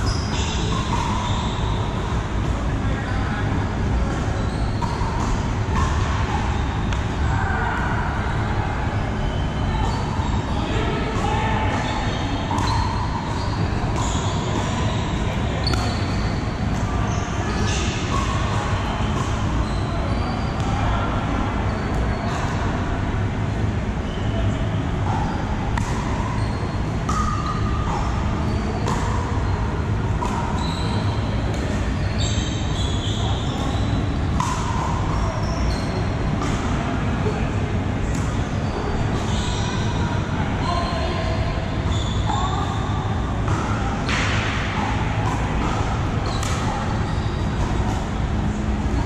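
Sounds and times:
background chatter: 27.7 - 49.0.

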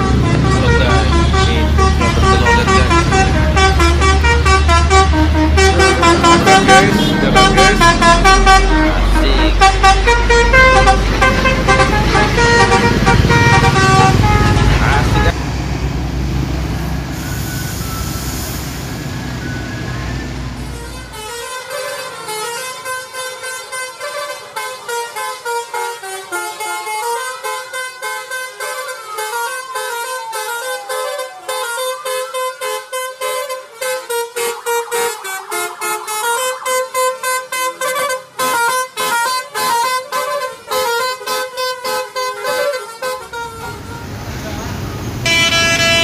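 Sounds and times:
air horn playing a tune: 0.0 - 15.4, 20.6 - 44.2, 45.2 - 46.0.

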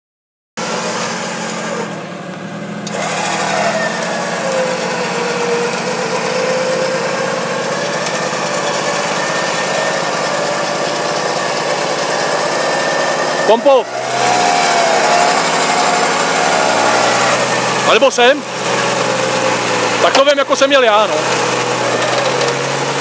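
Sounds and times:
car engine running: 0.6 - 23.0
electric winch whining under load: 0.6 - 23.0.

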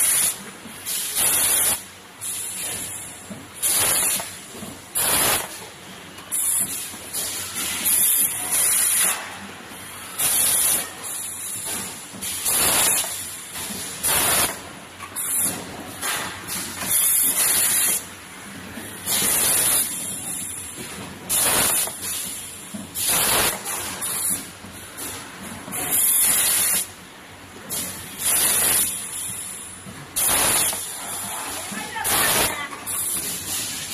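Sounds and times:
pneumatic air hissing bursts: 0.0 - 3.0, 3.6 - 4.4, 5.0 - 5.6, 6.3 - 9.2, 10.2 - 13.4, 14.0 - 14.6, 15.2 - 16.2, 16.8 - 18.1, 19.1 - 20.6, 21.3 - 24.4, 25.8 - 26.9, 27.8 - 31.0.

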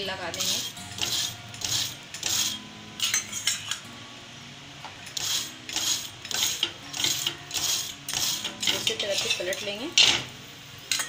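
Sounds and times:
metal utensil scraping on griddle: 0.3 - 3.8, 5.1 - 10.3.

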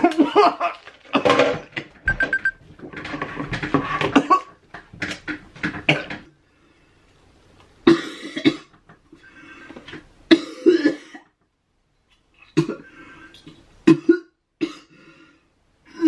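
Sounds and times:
man retching into bucket: 0.0 - 6.3
man coughing and gagging: 13.8 - 14.9.

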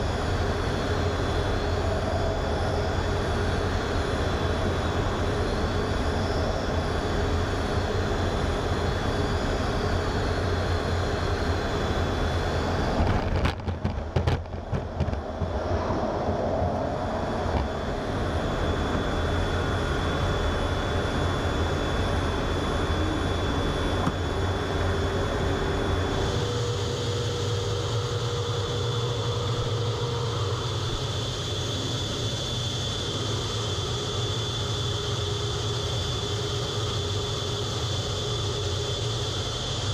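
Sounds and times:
jet engine rumble and whine: 0.0 - 39.9.

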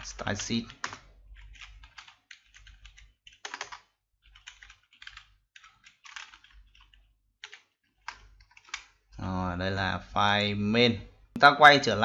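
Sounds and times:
typing on computer keyboard: 0.0 - 9.0.

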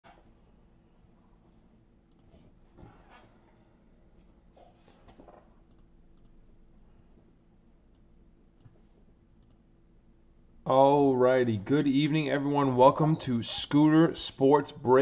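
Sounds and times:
faint clicks: 5.6 - 6.4, 9.4 - 9.6.

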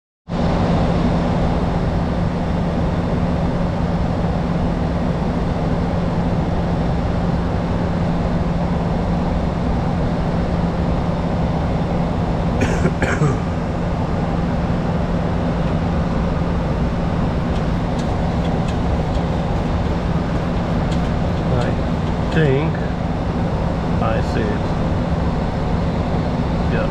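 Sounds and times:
aircraft engine noise: 0.3 - 26.9
rushing air: 13.3 - 26.7.

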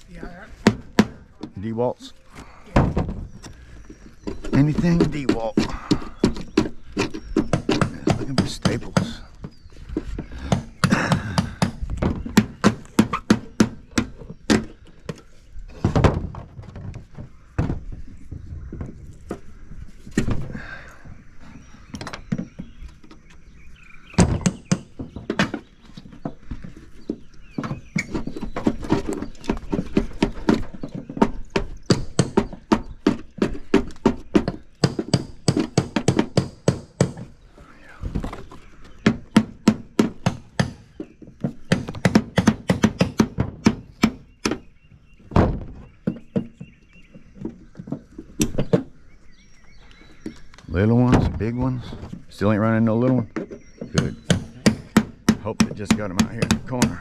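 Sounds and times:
hand tool knocking and tapping: 39.0 - 44.6, 53.3 - 57.0.

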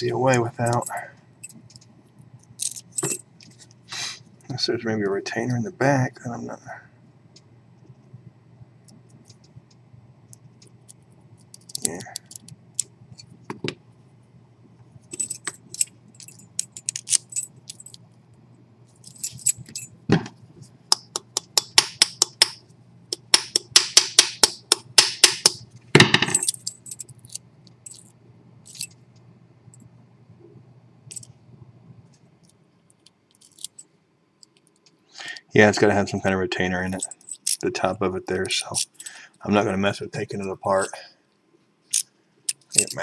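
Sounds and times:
small metal clicks and rattles: 0.3 - 3.7, 8.9 - 13.4, 15.1 - 18.2, 26.3 - 29.0, 32.4 - 33.8, 34.4 - 35.0, 41.9 - 43.0.

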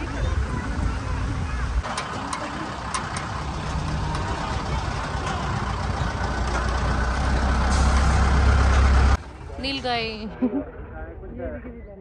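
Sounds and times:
vehicle engine and road noise: 0.0 - 11.7
clicks and knocks: 1.8 - 4.6.

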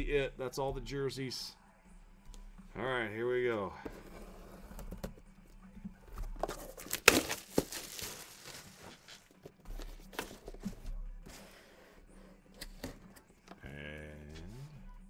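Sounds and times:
handling noises: 3.6 - 11.6
packaging ripping and rustling: 6.4 - 9.1.

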